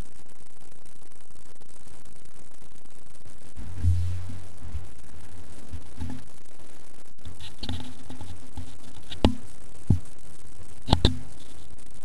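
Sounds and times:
steady low hum: 0:03.4 - 0:12.0
phone handling knocks and rubs: 0:07.4 - 0:09.4, 0:10.9 - 0:11.3.

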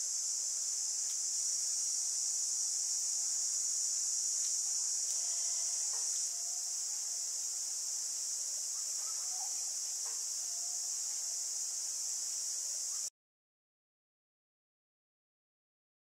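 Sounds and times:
insect chorus: 0:00.0 - 0:13.1
faint bird calls: 0:08.7 - 0:09.7.

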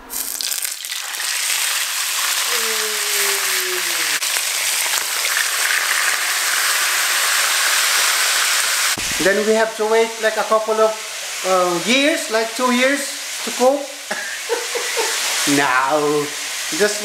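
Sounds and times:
fish sizzling in hot oil: 0:00.1 - 0:17.0
voice-like hum falling in pitch: 0:02.5 - 0:04.2.

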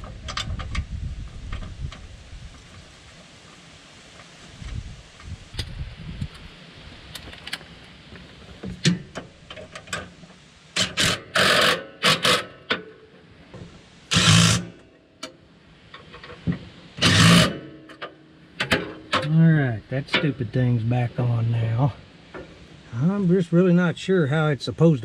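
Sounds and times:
impact driver bursts: 0:10.8 - 0:12.7, 0:14.1 - 0:14.8, 0:17.0 - 0:17.8.

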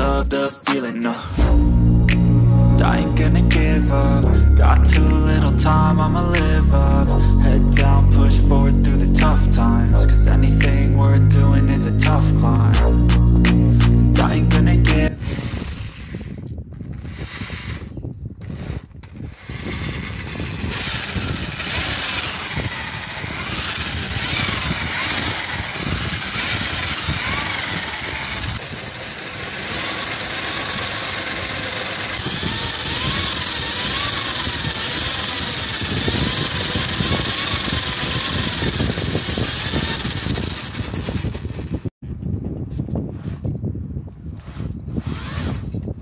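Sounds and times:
electric drill whining: 0:14.9 - 0:41.9, 0:44.4 - 0:45.8.

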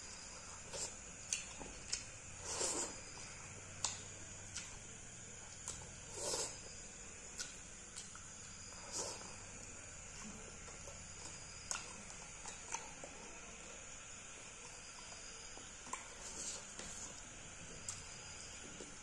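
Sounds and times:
chewing clicks and smacks: 0:00.8 - 0:02.2, 0:03.7 - 0:04.9, 0:07.3 - 0:08.5, 0:10.6 - 0:13.1.

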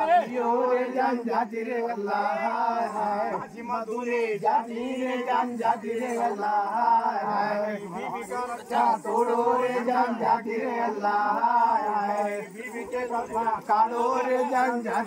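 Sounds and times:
men chanting: 0:00.0 - 0:15.0.

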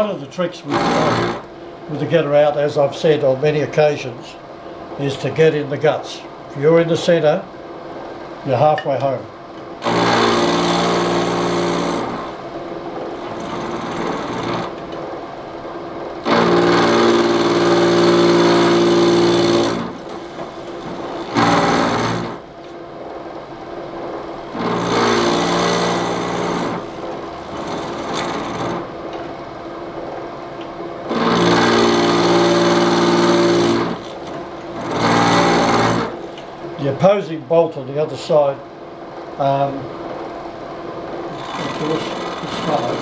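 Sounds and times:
milling machine drilling metal: 0:00.7 - 0:01.5, 0:09.8 - 0:12.4, 0:13.1 - 0:14.8, 0:16.2 - 0:22.4, 0:24.4 - 0:28.9, 0:31.1 - 0:36.2, 0:41.3 - 0:43.0.

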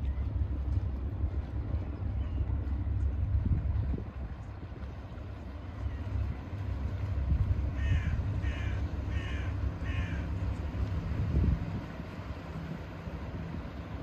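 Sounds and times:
wind rumble on microphone: 0:00.0 - 0:14.0
crow cawing: 0:07.8 - 0:10.3.

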